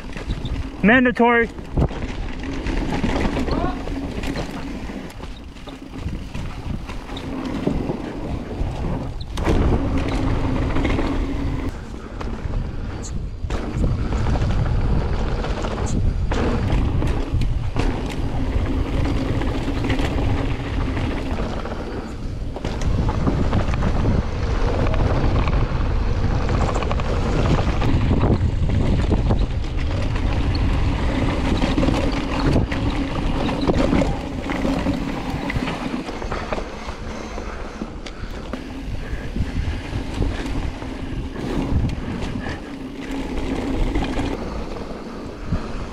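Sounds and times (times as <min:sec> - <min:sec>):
bike tyres on dirt: 0:00.0 - 0:45.9
wind buffeting microphone: 0:00.0 - 0:45.9.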